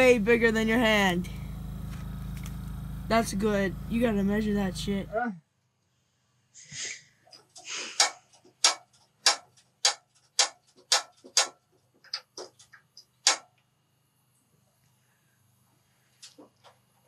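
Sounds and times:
heater igniter clicking: 0:00.9 - 0:04.0, 0:08.0 - 0:13.6.

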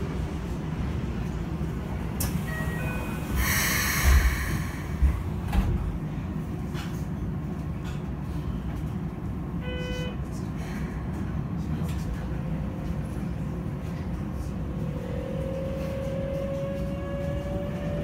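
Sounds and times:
low hum of standing train: 0:00.0 - 0:18.0
train doors hissing shut: 0:02.2 - 0:05.9.

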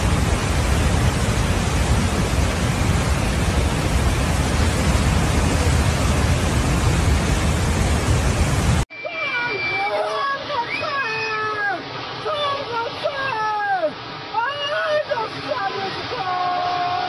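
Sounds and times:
deep rumble: 0:00.0 - 0:08.8
flood torrent rushing: 0:00.0 - 0:17.0.

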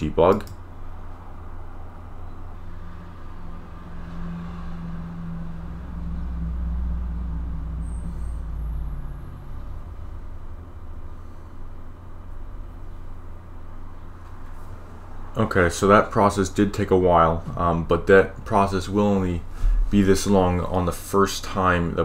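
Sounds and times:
passing vehicle rumble: 0:00.7 - 0:11.3.

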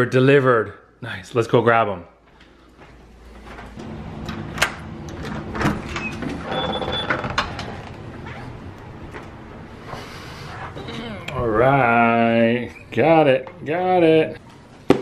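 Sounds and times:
footsteps: 0:02.2 - 0:04.4.

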